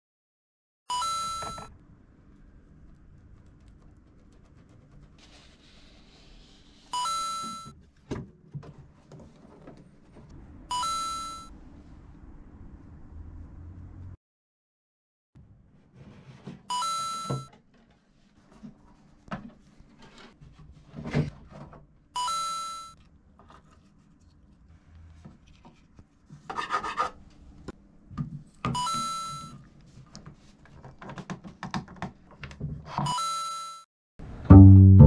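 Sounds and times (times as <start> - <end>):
rubbing and scraping: 2.9 - 7.0, 23.4 - 27.2.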